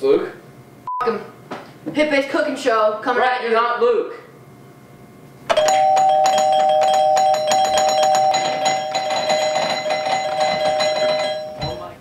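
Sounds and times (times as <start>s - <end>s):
electronic doorbell chime: 5.5s - 12.0s.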